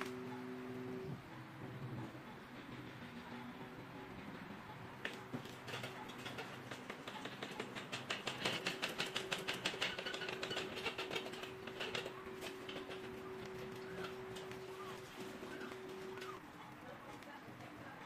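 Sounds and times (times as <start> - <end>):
rapid mechanical clicking: 2.2 - 16.4.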